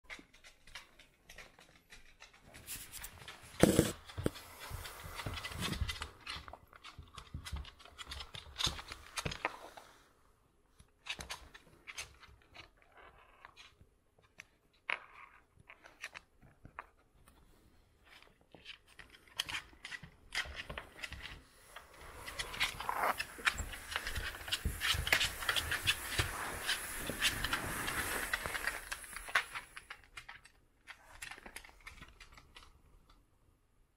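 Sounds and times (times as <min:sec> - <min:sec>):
dog claws scraping wooden floor: 0:00.1 - 0:10.0, 0:11.0 - 0:17.0, 0:18.0 - 0:32.8
fur rubbing: 0:21.5 - 0:29.2.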